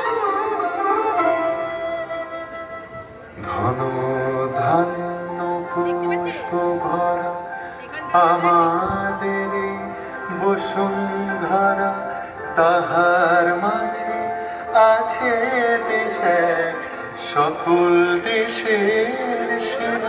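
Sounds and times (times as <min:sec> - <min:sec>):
ornamented melody: 0:00.0 - 0:20.0.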